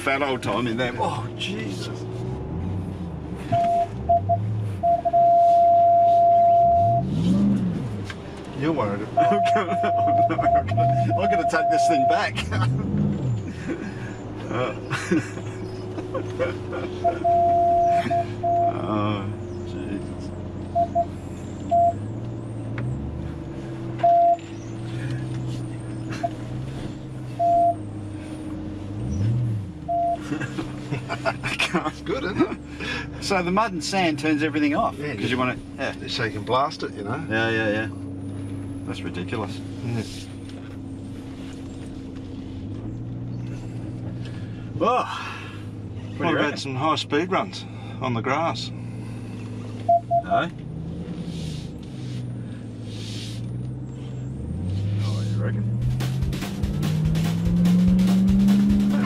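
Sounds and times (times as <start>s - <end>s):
low engine rumble: 0.0s - 59.0s
censor beeps: 3.5s - 7.1s, 9.2s - 12.3s, 17.2s - 18.8s, 20.7s - 21.1s, 21.7s - 22.0s, 24.0s - 24.5s, 27.4s - 27.8s, 29.9s - 30.2s, 49.9s - 50.4s.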